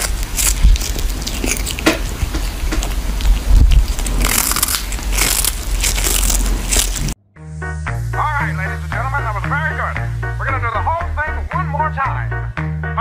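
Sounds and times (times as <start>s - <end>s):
kitten chewing fish: 0.0s - 7.2s
music: 7.2s - 13.0s.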